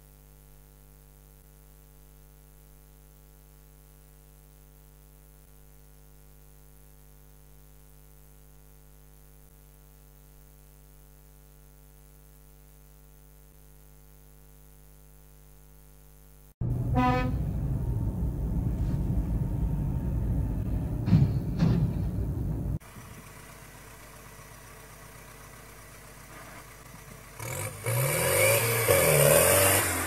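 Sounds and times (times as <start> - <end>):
vehicle road rumble: 16.6 - 30.0
tractor diesel engine revving: 22.3 - 30.0.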